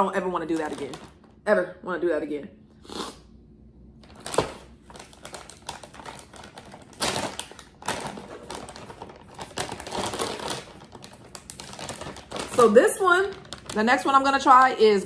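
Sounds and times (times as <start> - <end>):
plastic pouch crinkling: 0.5 - 1.3, 4.0 - 14.6.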